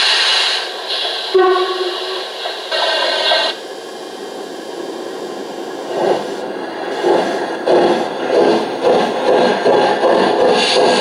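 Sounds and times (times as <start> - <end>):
locomotive whistle: 1.3 - 2.2.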